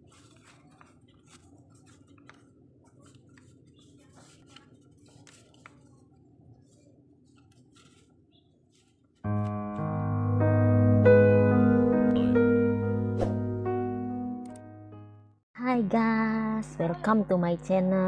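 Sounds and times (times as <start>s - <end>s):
banknotes rustling: 0.0s - 9.8s
electric piano music: 9.3s - 15.4s.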